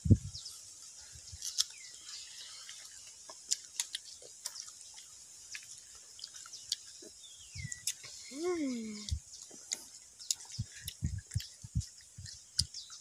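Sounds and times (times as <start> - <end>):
steady high-pitched hiss: 0.0 - 13.0
crunching mango: 1.3 - 8.1.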